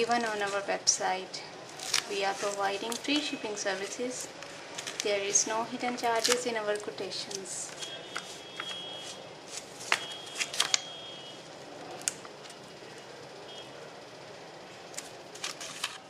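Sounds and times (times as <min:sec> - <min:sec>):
sticker peeling crackles: 0:01.7 - 0:10.9.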